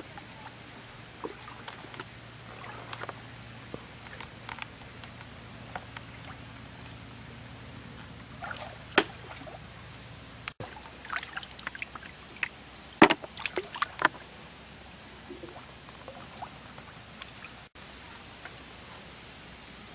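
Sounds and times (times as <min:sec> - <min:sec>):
water splashing and dripping: 0:00.0 - 0:07.2, 0:08.0 - 0:09.7, 0:10.4 - 0:14.5, 0:15.2 - 0:17.8.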